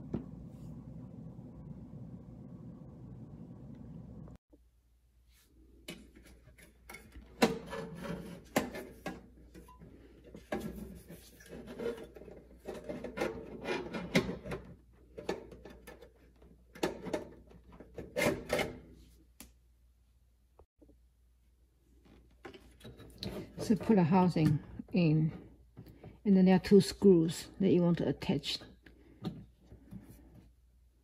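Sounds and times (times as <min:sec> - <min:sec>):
rubbing and rustling of wires: 0:06.0 - 0:14.4.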